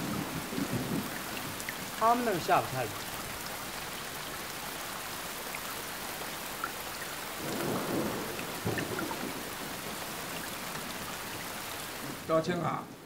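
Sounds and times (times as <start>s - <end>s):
thunder rumble: 0.0s - 1.9s, 7.4s - 9.8s
heavy rain: 0.0s - 13.0s.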